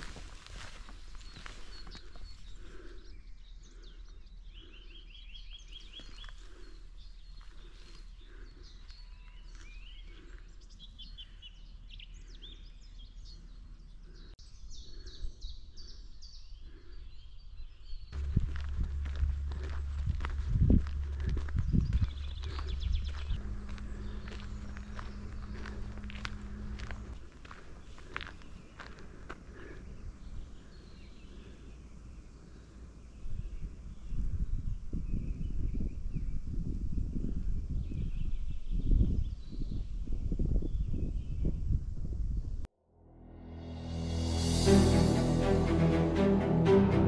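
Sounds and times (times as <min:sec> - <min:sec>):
footsteps walking: 0:00.0 - 0:02.4, 0:18.2 - 0:29.2
songbirds chirping and singing: 0:00.0 - 0:36.4
steady low hum: 0:18.2 - 0:28.1
short high trill: 0:42.8 - 0:47.0.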